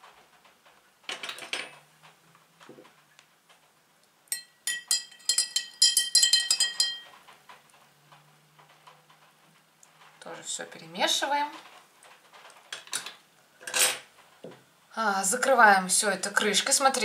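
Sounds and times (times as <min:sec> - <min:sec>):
teaspoon clinking against glass jar: 0:04.3 - 0:07.1.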